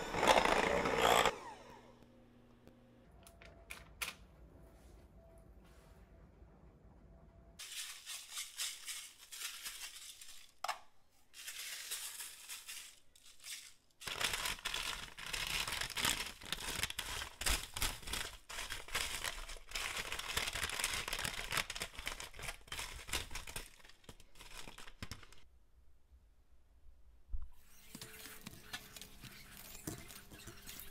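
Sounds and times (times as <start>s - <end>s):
parchment paper crinkling: 11.3s - 25.5s.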